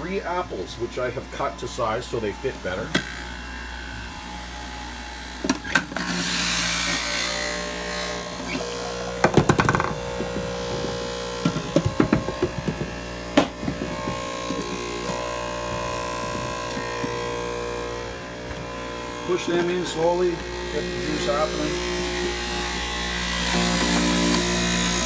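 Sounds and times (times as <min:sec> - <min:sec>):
juicer motor humming: 0:00.0 - 0:25.0
fruit knocking in juicer chute: 0:09.2 - 0:15.2.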